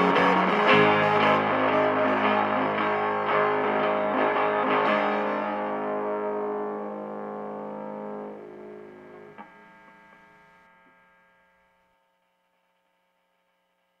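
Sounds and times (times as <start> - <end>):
distorted electric guitar chord: 0.0 - 11.0.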